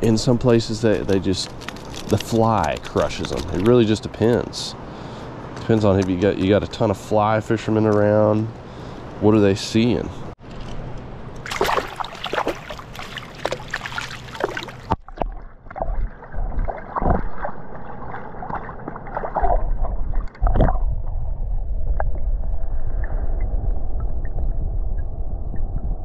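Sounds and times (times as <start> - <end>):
water splashing and dripping: 11.4 - 20.9
underwater gurgling: 11.5 - 26.0
low rumble: 14.9 - 26.0.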